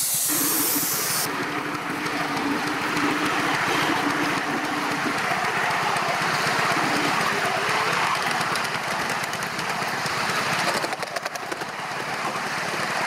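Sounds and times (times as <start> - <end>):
steam hissing: 0.0 - 1.4
rapid steam exhaust beats: 0.0 - 13.0
wheels clicking on track: 0.0 - 13.0.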